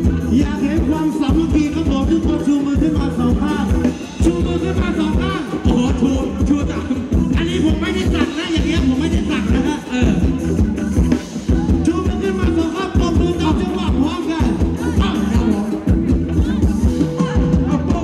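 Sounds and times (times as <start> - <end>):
live band music: 0.0 - 18.0
person singing: 0.0 - 18.0.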